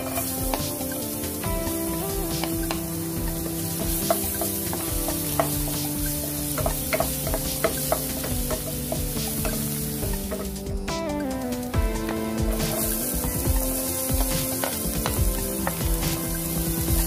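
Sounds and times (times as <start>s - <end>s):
background music: 0.0s - 17.0s
garlic sizzling in hot oil: 0.0s - 17.0s
spatula tapping and scraping pot: 2.2s - 10.6s, 12.0s - 17.0s.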